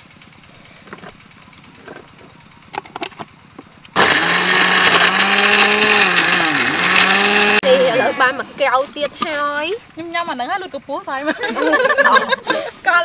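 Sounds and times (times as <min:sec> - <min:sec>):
blender motor humming: 0:04.0 - 0:08.3.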